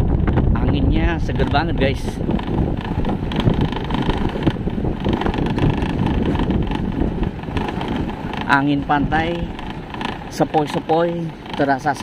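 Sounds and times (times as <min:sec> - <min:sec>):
motorcycle engine: 0:00.0 - 0:12.0
wind noise on microphone: 0:00.0 - 0:12.0.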